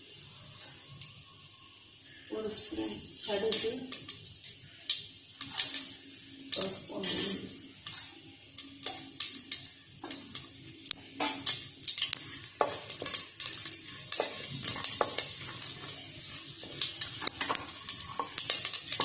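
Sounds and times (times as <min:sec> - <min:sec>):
seeds popping in hot oil: 0:00.3 - 0:19.0
wooden spatula knocking cooker: 0:12.1 - 0:19.0.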